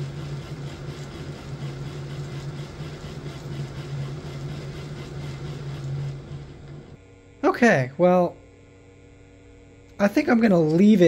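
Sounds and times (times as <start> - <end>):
model locomotive motor hum: 0.0 - 7.0.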